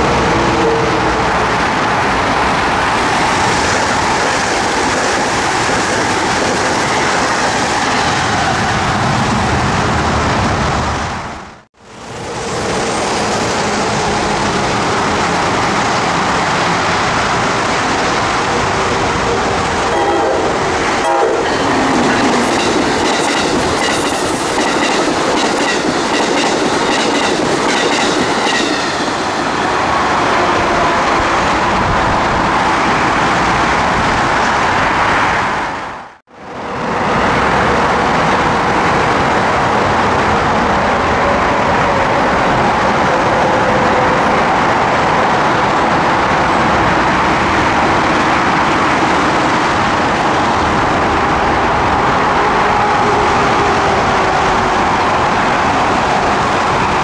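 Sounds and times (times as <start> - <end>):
train rumble and wheel clatter: 0.0 - 57.0
train horn: 19.9 - 21.7.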